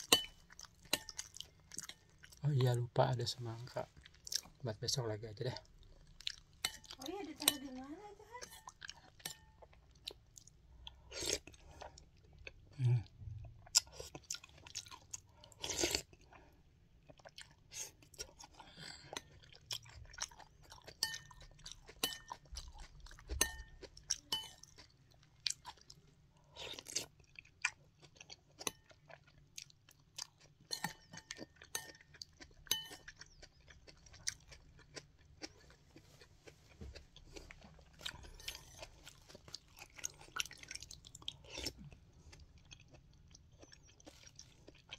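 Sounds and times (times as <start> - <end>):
wet crunchy chewing: 3.8 - 4.6, 13.6 - 44.9.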